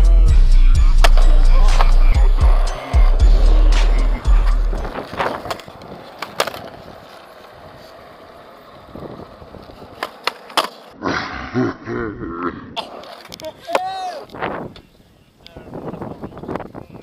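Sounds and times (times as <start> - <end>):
skateboard wheels rumbling: 0.9 - 11.0, 12.8 - 14.8
skateboard clacks: 1.0 - 10.9.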